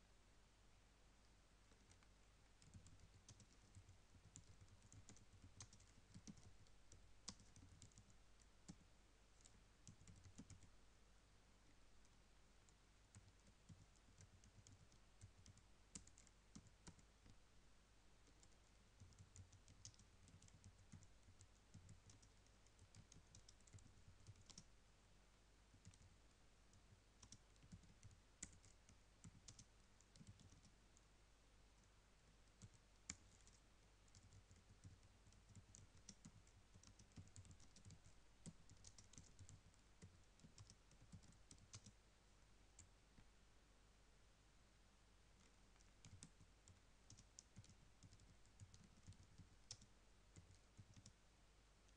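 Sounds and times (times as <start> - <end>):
faint keyboard typing: 1.2 - 10.8, 11.7 - 17.4, 18.2 - 24.8, 25.7 - 31.1, 31.7 - 42.0, 42.7 - 43.3, 45.3 - 51.9.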